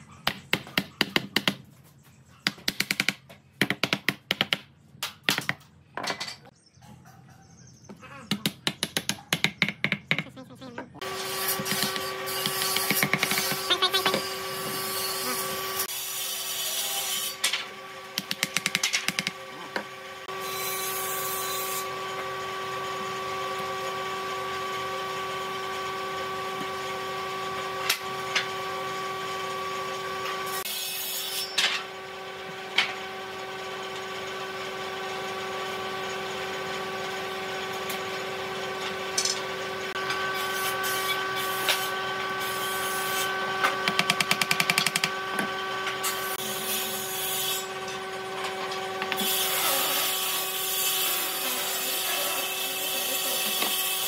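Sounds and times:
hand tool scraping wood: 0:11.0 - 0:15.9.

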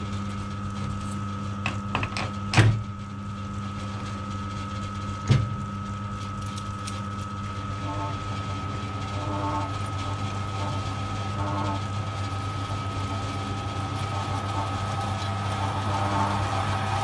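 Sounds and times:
metal lathe motor hum: 0:05.4 - 0:17.0
drill bit cutting metal: 0:07.8 - 0:17.0.

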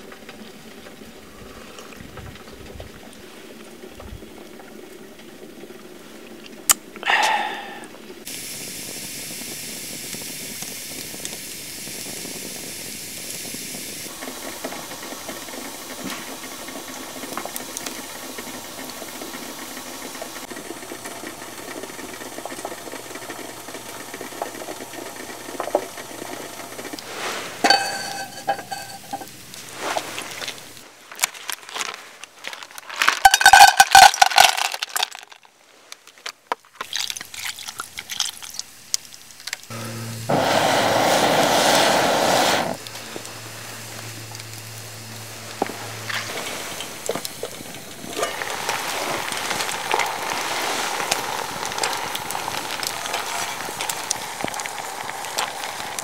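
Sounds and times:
wood fire hissing and crackling: 0:00.0 - 0:56.0
metal cookware clattering: 0:27.7 - 0:29.3.

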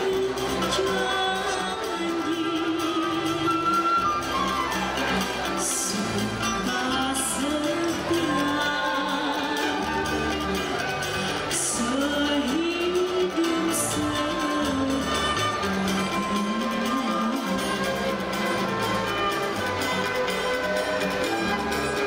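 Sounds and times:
woman singing: 0:00.0 - 0:04.3, 0:05.5 - 0:20.8
low steady backing music: 0:00.0 - 0:22.0
violin: 0:00.0 - 0:22.0
flute: 0:03.0 - 0:06.6, 0:08.1 - 0:22.0.

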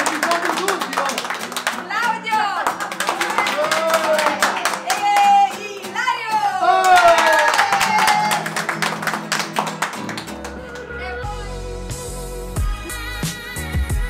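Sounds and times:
hands clapping: 0:00.0 - 0:06.2, 0:06.8 - 0:11.0
classical guitar strumming: 0:00.0 - 0:06.8, 0:08.0 - 0:10.8.

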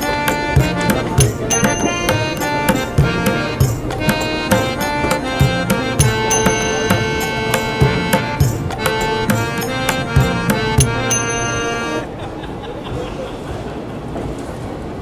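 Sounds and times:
melodic line of held notes: 0:00.0 - 0:12.1
tabla drum strokes: 0:00.2 - 0:11.7.

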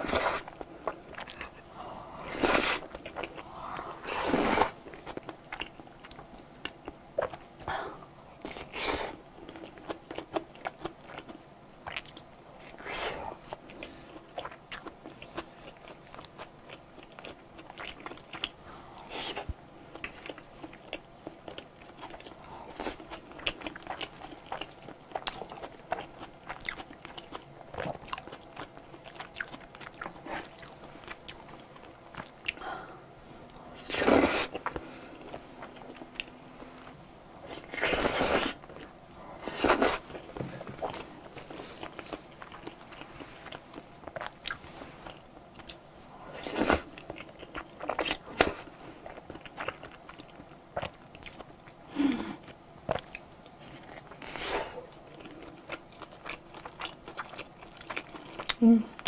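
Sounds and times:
wet chewing with smacks: 0:52.4 - 0:59.0.

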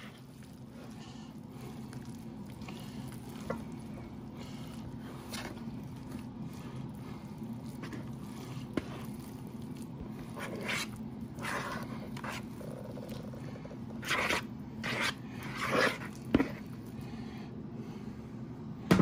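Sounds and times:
spatula scraping a bowl: 0:10.2 - 0:12.6, 0:14.0 - 0:16.7.

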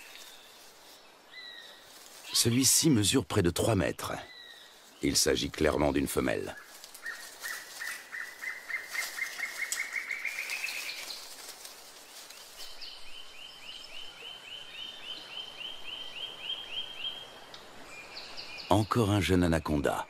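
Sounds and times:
rapid chirping calls: 0:06.2 - 0:11.4.

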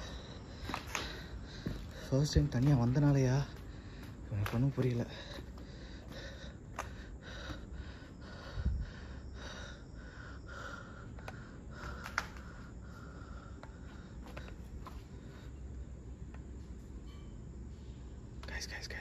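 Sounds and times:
faint footsteps: 0:00.0 - 0:08.6, 0:13.5 - 0:15.5.

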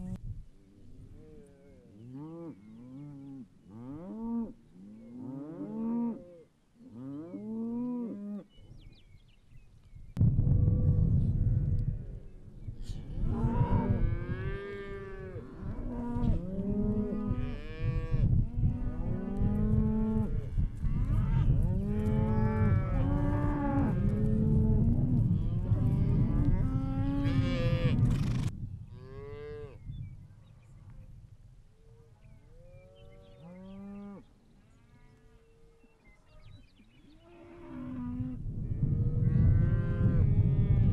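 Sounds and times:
cows mooing and bawling: 0:01.2 - 0:08.4, 0:13.1 - 0:28.1, 0:32.8 - 0:34.3
low rumble: 0:10.1 - 0:14.5.

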